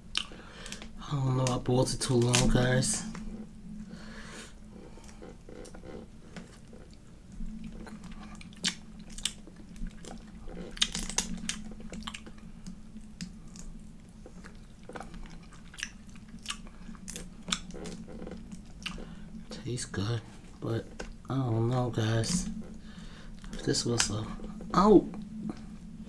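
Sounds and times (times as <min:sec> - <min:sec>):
person chewing: 0:00.0 - 0:00.9, 0:04.8 - 0:19.2
low steady hum: 0:00.0 - 0:26.0.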